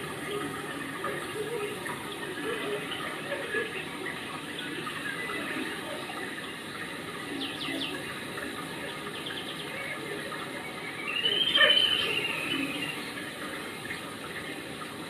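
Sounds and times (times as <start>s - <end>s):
running water: 0.0s - 15.0s
bird chirps: 11.1s - 13.0s.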